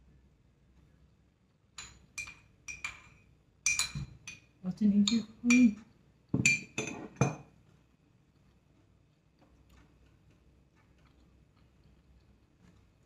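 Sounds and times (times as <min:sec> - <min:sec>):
spoon clinking against a bowl: 0:01.8 - 0:05.8, 0:06.4 - 0:07.4.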